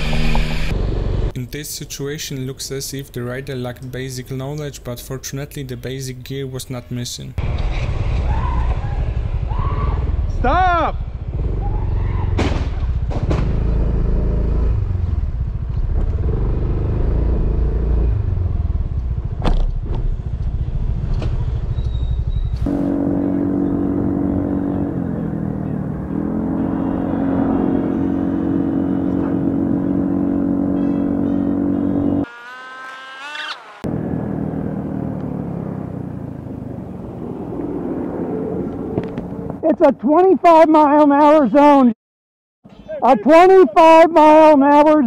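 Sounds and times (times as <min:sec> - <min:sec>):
motorcycle engine rumble: 0:07.4 - 0:32.3, 0:33.4 - 0:39.7
heavy low wind: 0:33.9 - 0:39.7.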